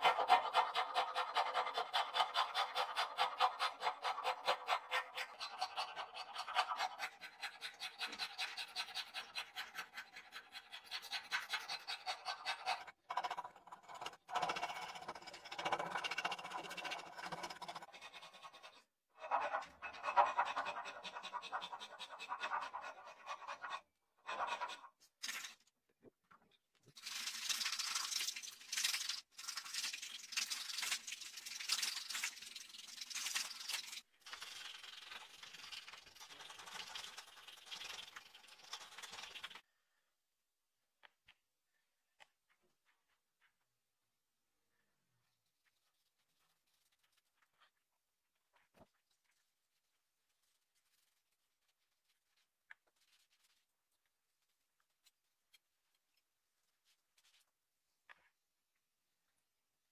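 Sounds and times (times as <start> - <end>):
file rasping on wood: 0.0 - 25.0.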